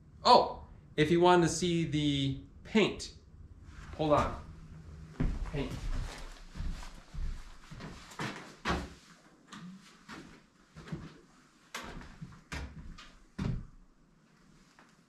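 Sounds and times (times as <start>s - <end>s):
footsteps on wooden floor: 5.1s - 9.0s.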